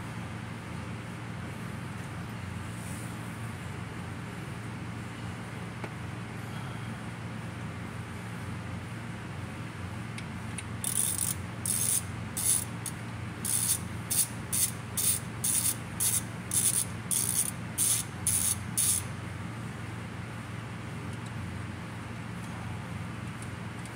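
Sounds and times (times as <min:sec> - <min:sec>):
steady low hum: 0:00.0 - 0:23.9
ratchet wrench clicking: 0:10.6 - 0:19.1.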